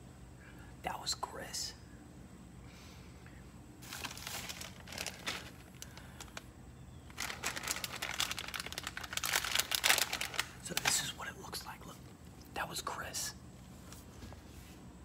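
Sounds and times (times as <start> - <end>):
plastic snack bag crackling: 3.8 - 11.2.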